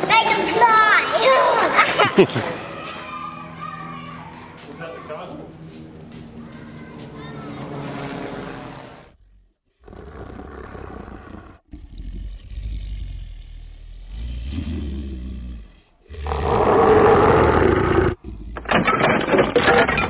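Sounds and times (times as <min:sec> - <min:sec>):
dinosaur growls and roar: 0:08.2 - 0:18.8.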